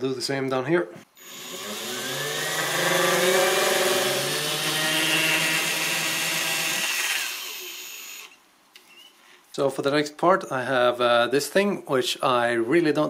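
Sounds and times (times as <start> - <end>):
power drill motor whine: 1.2 - 8.4.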